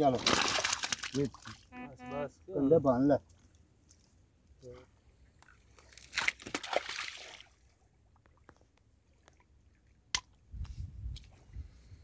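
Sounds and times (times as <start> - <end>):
shallow water splashing: 0.0 - 1.7, 5.5 - 8.5.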